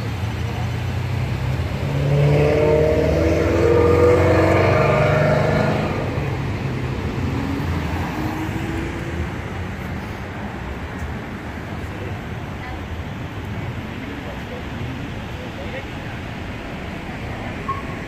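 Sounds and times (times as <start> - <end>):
vehicle engine passing by: 0.0 - 6.4
low traffic rumble: 0.0 - 18.0.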